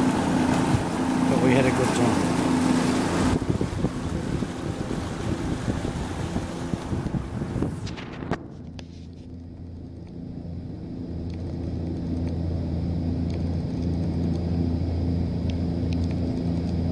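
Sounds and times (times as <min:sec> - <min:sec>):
boat engine droning: 0:00.0 - 0:16.9
wind noise: 0:02.4 - 0:09.4.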